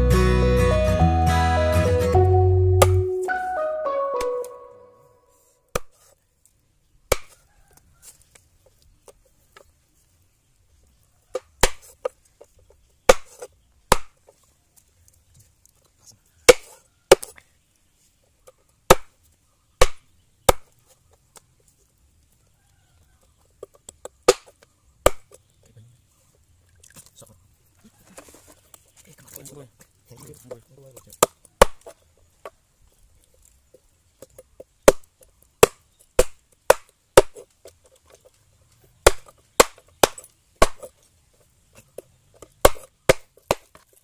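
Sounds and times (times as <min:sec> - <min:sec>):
knife chopping on wooden board: 0:16.5 - 0:17.3.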